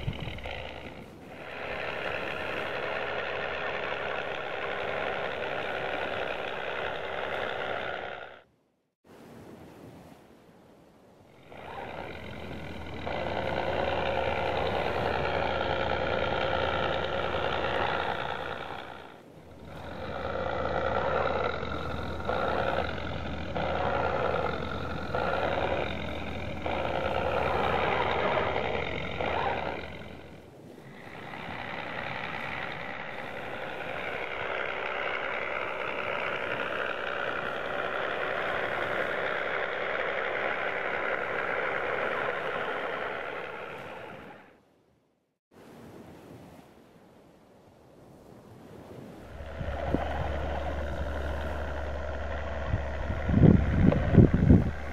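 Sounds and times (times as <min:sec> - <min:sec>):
simulated engine sound: 0:11.4 - 0:30.4, 0:49.3 - 0:54.9.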